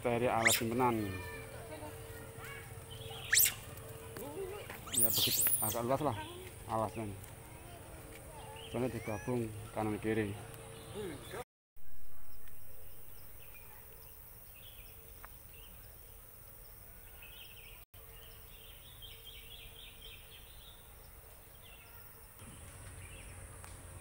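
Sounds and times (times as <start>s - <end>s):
bird chirps: 0.3s - 1.4s, 2.8s - 3.7s, 4.8s - 7.0s.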